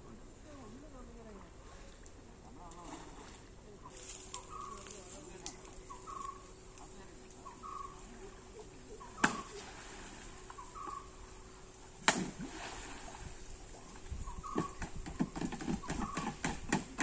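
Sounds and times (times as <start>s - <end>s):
bird calling short notes: 3.9s - 6.8s, 7.4s - 8.2s.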